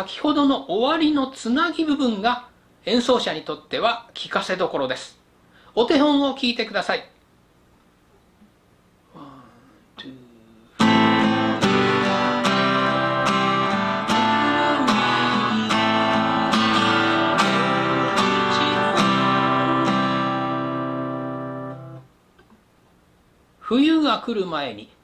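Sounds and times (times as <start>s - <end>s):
acoustic guitar strumming: 10.8s - 22.1s.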